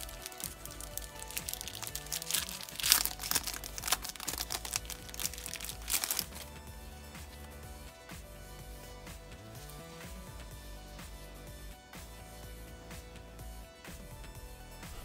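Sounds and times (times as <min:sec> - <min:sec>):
plastic wrapping crinkling: 0:00.0 - 0:06.6
background music: 0:00.0 - 0:15.0.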